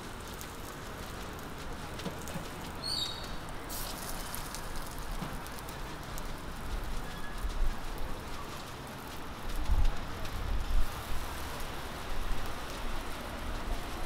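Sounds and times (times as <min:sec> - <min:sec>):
pancakes sizzling in oil: 0:00.0 - 0:07.4, 0:10.6 - 0:14.0.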